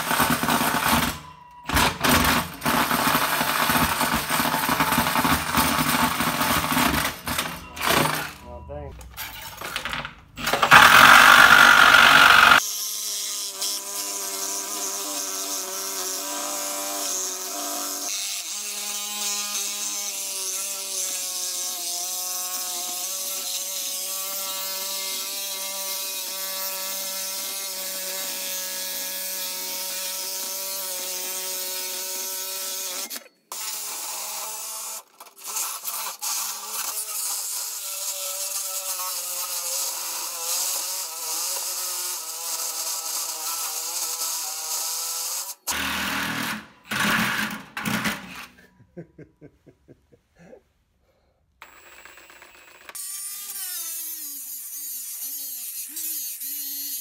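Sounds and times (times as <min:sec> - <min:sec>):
reciprocating saw cutting steel: 0:10.4 - 0:48.7, 0:51.6 - 0:57.0.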